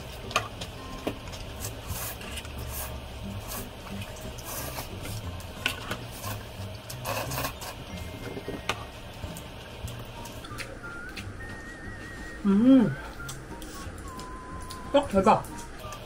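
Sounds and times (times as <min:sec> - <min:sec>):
slurping and chewing noodles: 0:01.6 - 0:07.8.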